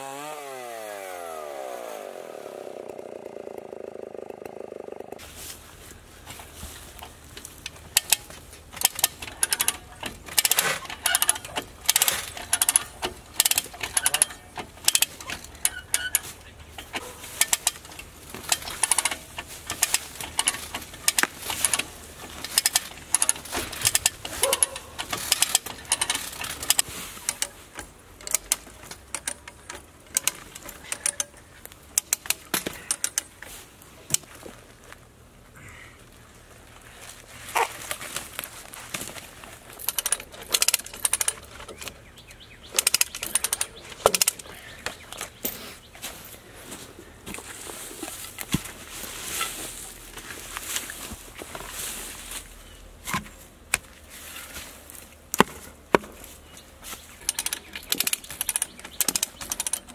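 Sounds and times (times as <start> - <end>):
hand winch ratchet clicking: 6.9 - 34.3, 39.6 - 45.9, 55.3 - 59.9.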